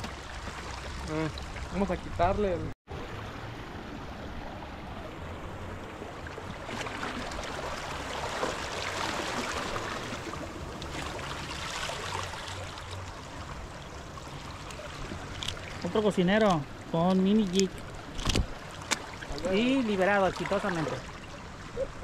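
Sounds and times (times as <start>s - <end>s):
seawater lapping against rocks: 5.2s - 22.0s.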